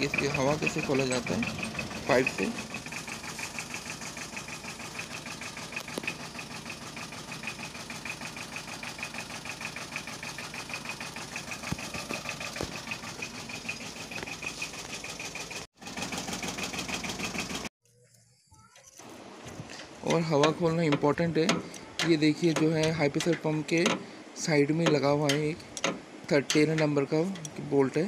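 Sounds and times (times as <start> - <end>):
diesel engine idling: 0.0 - 17.7.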